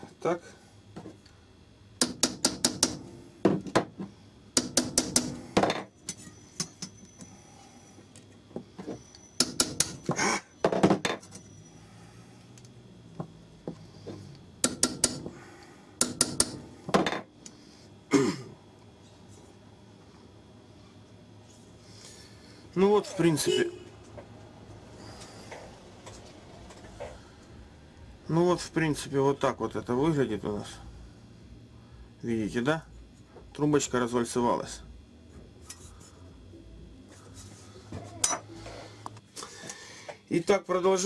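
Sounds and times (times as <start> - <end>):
small hammer tapping metal: 2.0 - 3.1, 4.6 - 7.0, 9.4 - 10.1, 14.6 - 15.3, 16.0 - 16.6.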